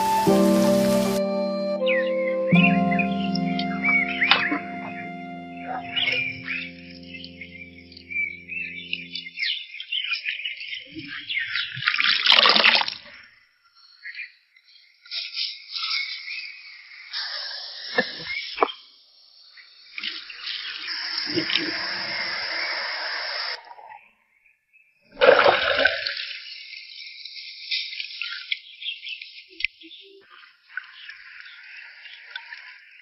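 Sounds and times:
water pouring and splashing: 0:00.0 - 0:01.2, 0:11.7 - 0:13.2, 0:19.9 - 0:23.8, 0:25.1 - 0:28.7.

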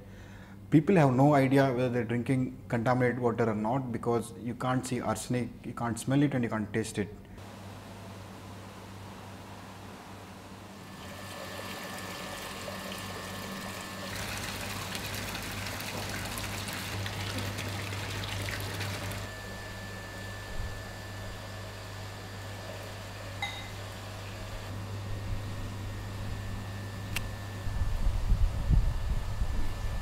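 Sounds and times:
steady low hum: 0:07.0 - 0:30.0
water churning and splashing: 0:11.0 - 0:19.3.

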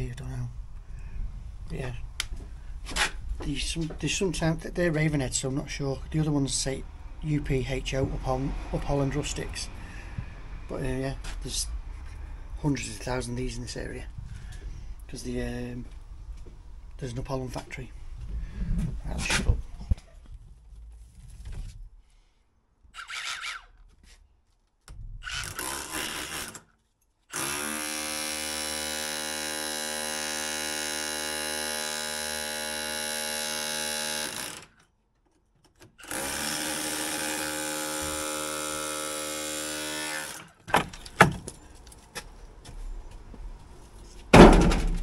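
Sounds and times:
hammer drill drilling into brick: 0:25.2 - 0:26.6, 0:27.3 - 0:34.7, 0:36.0 - 0:40.5
sharp knocks: 0:44.3 - 0:45.0.

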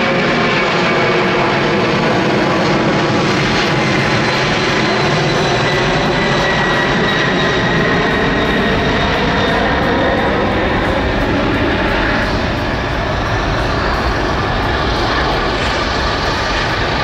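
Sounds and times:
jet taking off: 0:00.0 - 0:17.0.

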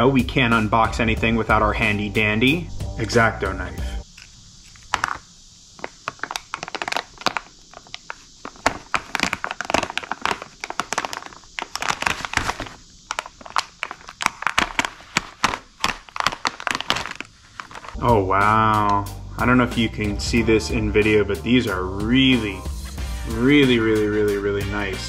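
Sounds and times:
plastic bags crinkling: 0:04.2 - 0:18.0.

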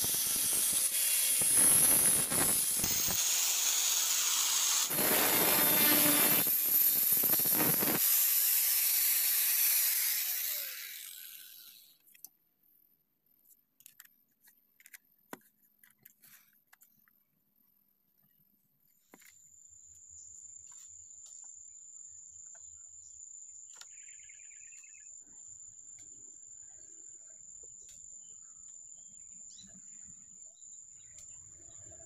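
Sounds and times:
grinder whine spinning down: 0:00.0 - 0:08.0, 0:09.5 - 0:11.8
angle grinder cutting metal: 0:00.0 - 0:12.0.

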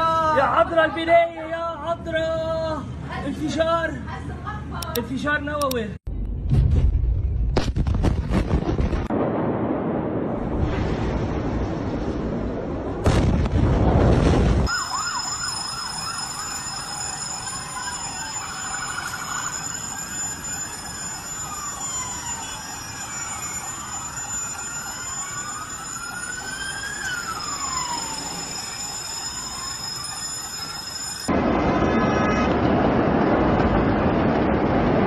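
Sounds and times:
emergency sirens wailing: 0:14.6 - 0:35.0
steady high-pitched tones: 0:14.7 - 0:31.4.

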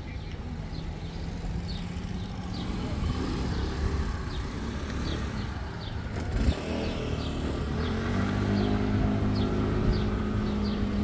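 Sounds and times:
vehicle engine running: 0:00.2 - 0:11.0.

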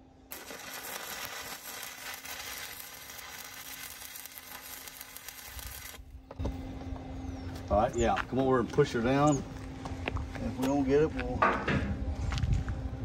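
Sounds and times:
welding arc crackling: 0:00.3 - 0:06.1.

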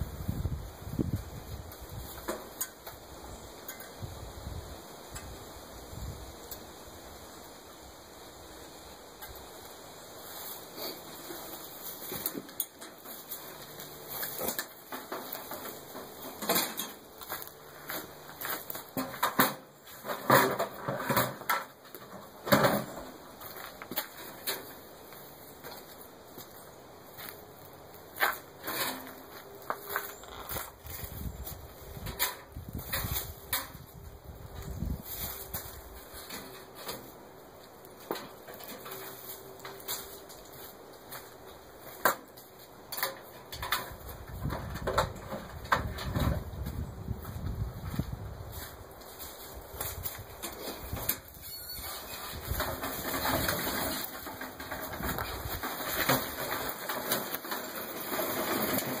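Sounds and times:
cart wheels rolling on gravel: 0:00.0 - 0:06.2, 0:09.1 - 0:59.0
footsteps on gravel: 0:10.3 - 0:19.2, 0:23.3 - 0:32.0, 0:45.5 - 0:51.0.

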